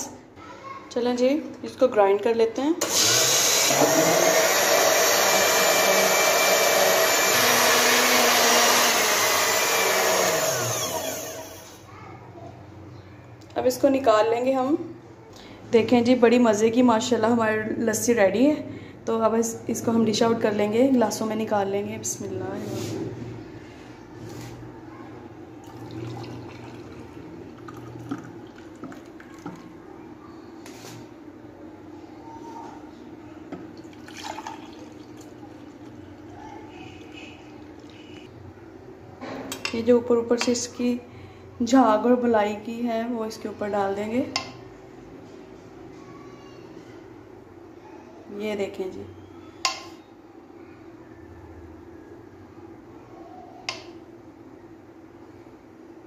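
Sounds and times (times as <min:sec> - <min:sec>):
electric blender running: 0:02.8 - 0:11.8
thick liquid pouring into glass: 0:25.6 - 0:29.7, 0:33.8 - 0:35.9.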